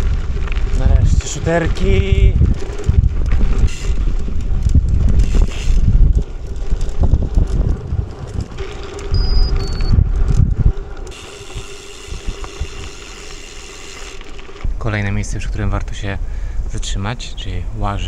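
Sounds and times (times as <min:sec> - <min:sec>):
wind buffeting microphone: 0:00.0 - 0:13.2
bicycle rolling on gravel: 0:00.0 - 0:15.4.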